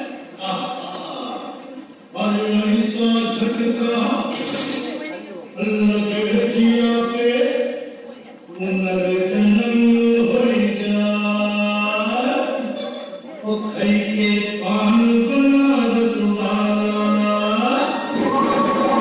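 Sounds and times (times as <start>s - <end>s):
man singing long notes: 13.6s - 19.0s
music: 18.0s - 19.0s.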